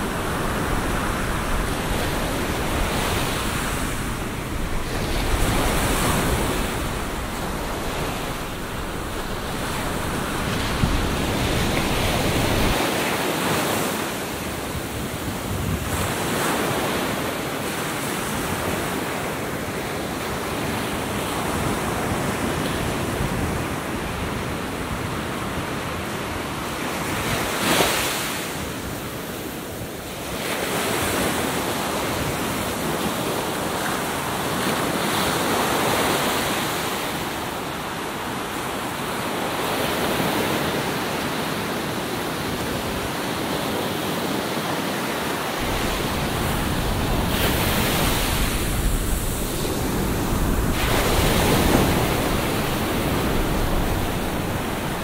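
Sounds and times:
wind rumble on microphone: 0:00.0 - 0:19.0, 0:45.6 - 0:55.0
surf breaking on a beach: 0:00.0 - 0:55.0.

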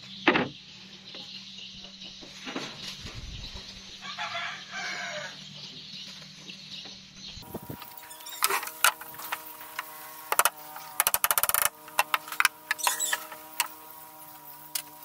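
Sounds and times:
faint steady hum: 0:00.0 - 0:15.0
hammer striking nails into wood: 0:10.3 - 0:12.8.

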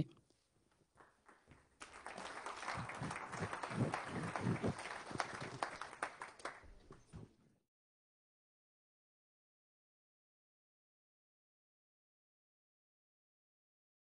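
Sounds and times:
audience applauding: 0:01.0 - 0:07.1.

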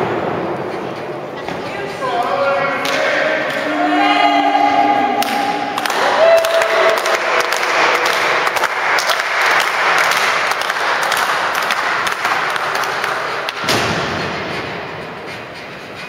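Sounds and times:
crowd cheering and clapping: 0:04.8 - 0:13.7.

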